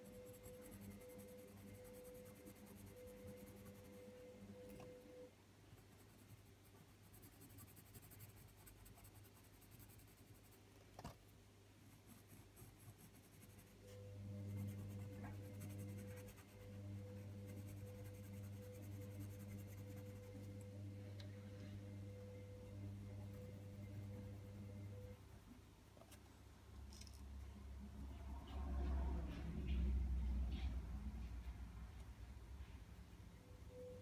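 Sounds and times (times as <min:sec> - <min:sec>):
pencil scratching on paper: 0:00.0 - 0:04.1, 0:05.9 - 0:10.6, 0:11.9 - 0:20.7
low steady hum: 0:00.0 - 0:34.0.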